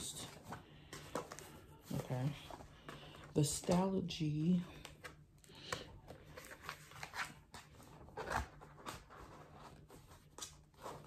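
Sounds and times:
notebooks rustling: 0.0 - 11.0.

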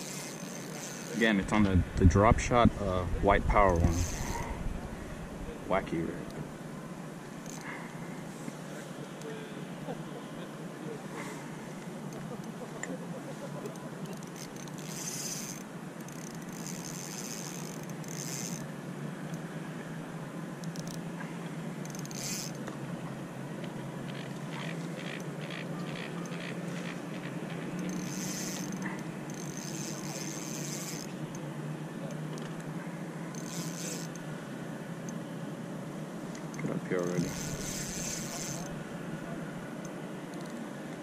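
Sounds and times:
fishing reel clicking and buzzing: 0.0 - 1.4, 3.6 - 4.5, 7.4 - 7.7, 14.0 - 18.7, 20.6 - 21.0, 21.8 - 22.7, 24.1 - 31.4, 33.3 - 34.3, 36.3 - 38.8
water noise: 0.0 - 41.0
wind: 0.0 - 41.0.

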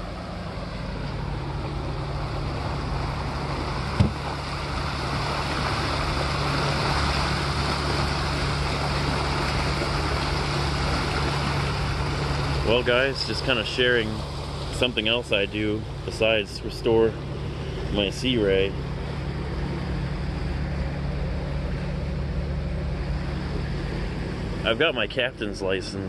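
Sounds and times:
boat engine running: 0.0 - 26.0
water churning in wake: 0.0 - 26.0
short knock: 4.0 - 4.2.

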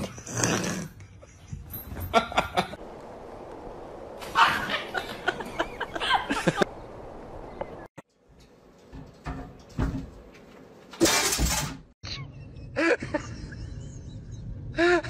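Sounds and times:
person laughing: 4.4 - 6.7, 12.0 - 15.0.

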